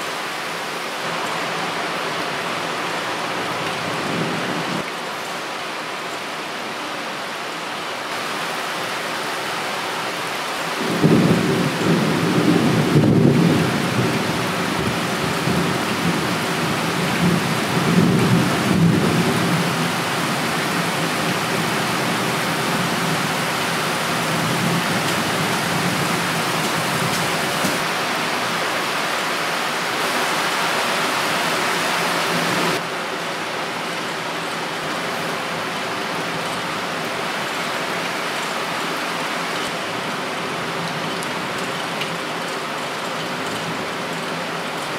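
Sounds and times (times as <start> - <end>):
torrential rain pouring: 0.0 - 44.9
distant thunder rumbling: 10.8 - 16.3.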